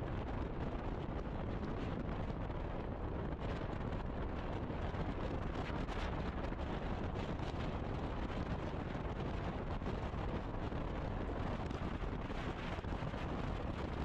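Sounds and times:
wind noise on microphone: 0.0 - 14.0.

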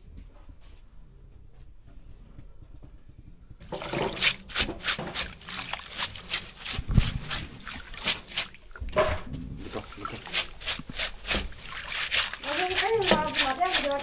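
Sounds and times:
water splashing and sloshing: 3.6 - 14.0.

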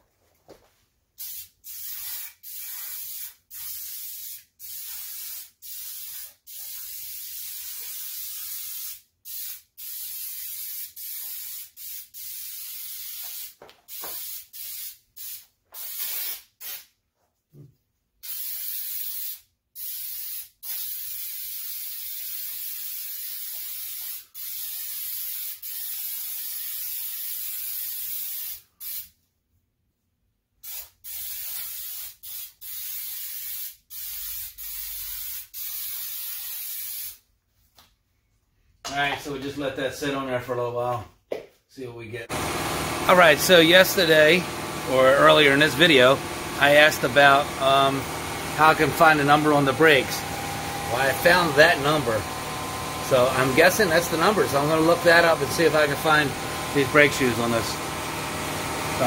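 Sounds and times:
aerosol can spraying: 1.2 - 16.9, 18.2 - 29.1, 30.6 - 37.2.

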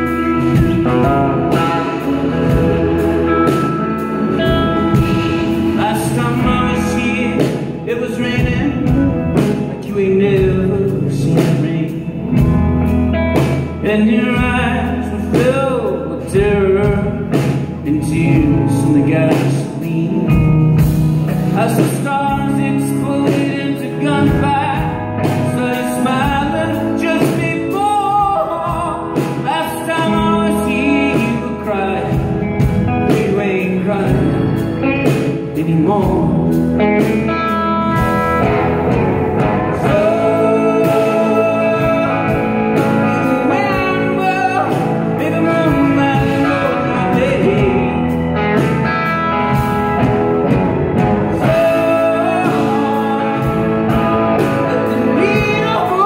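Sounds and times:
rock band playing live: 0.0 - 56.0.

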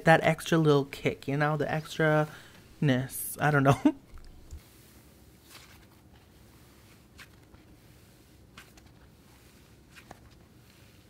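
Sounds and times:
slime stretching with soft crackles: 4.2 - 11.0.

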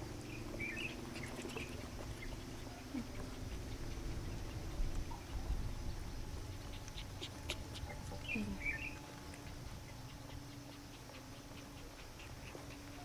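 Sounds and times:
puppies chirping: 0.2 - 13.0.

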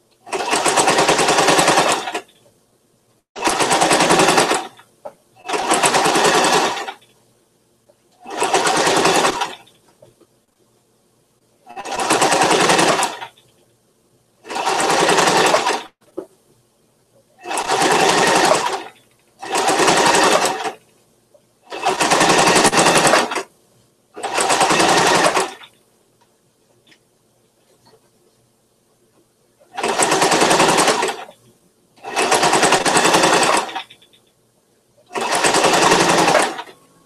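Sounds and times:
sewing machine stitching: 0.2 - 2.4, 3.4 - 7.1, 8.2 - 9.8, 11.7 - 13.4, 14.4 - 16.0, 17.4 - 20.8, 21.6 - 23.5, 24.2 - 25.8, 29.6 - 31.4, 32.0 - 34.2, 35.1 - 37.0.

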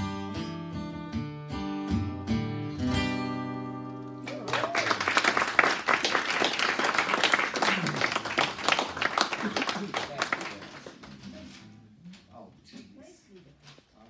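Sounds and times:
acoustic guitar playing: 0.0 - 4.4
audience applause: 4.2 - 11.4.

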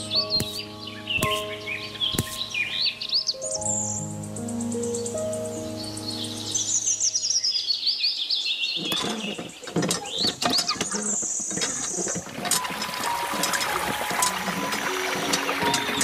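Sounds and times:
high descending bird trill: 0.0 - 8.8
birds chirping: 0.0 - 16.0
hand pump lever clicking and squeaking: 8.8 - 16.0.

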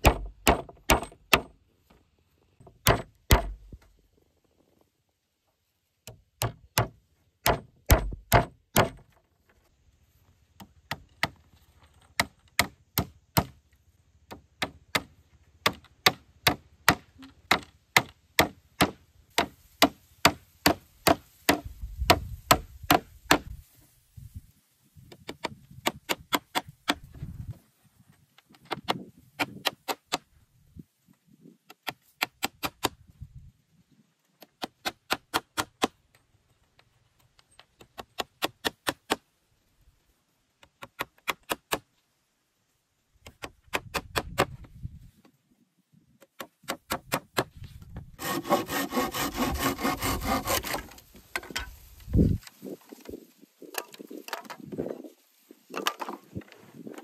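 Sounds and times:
hand tool striking wood: 0.0 - 1.6, 2.6 - 3.8, 6.0 - 9.2, 10.6 - 13.6, 14.3 - 23.6, 25.1 - 27.2, 34.5 - 36.0, 46.2 - 47.6, 48.2 - 52.3.

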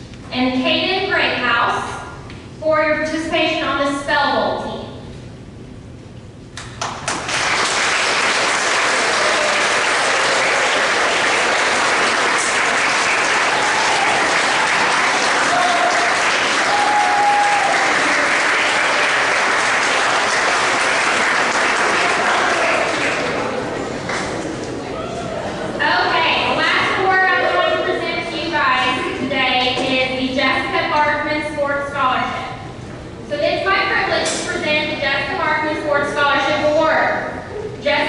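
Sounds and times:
audience applauding: 6.6 - 25.0.

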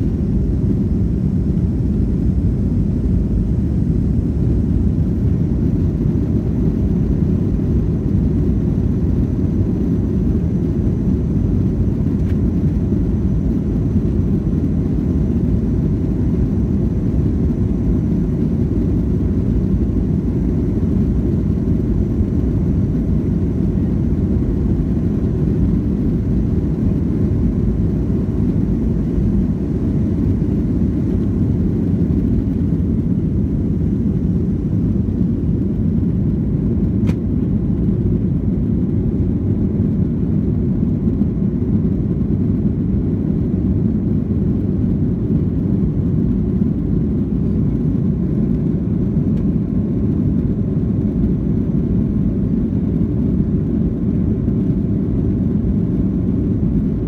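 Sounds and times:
jet engine roar in cabin: 0.0 - 57.0
single click: 37.0 - 37.2.

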